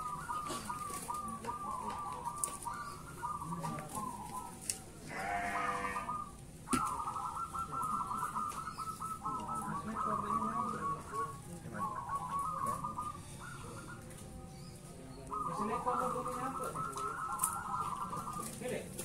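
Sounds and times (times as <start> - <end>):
doves cooing: 0.0 - 19.0
animal call: 5.1 - 14.2.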